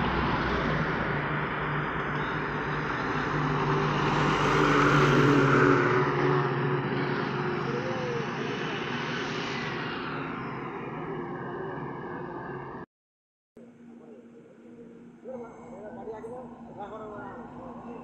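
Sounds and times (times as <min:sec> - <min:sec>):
heavy truck driving past: 0:00.0 - 0:12.8.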